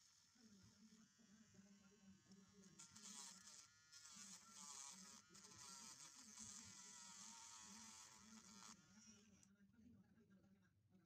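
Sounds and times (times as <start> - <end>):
electric drill grinding plastic: 2.8 - 9.5.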